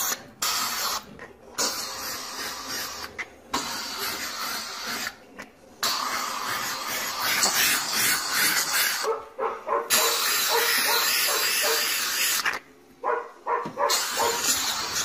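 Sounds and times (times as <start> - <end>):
steam cleaner hissing: 13.8 - 15.0.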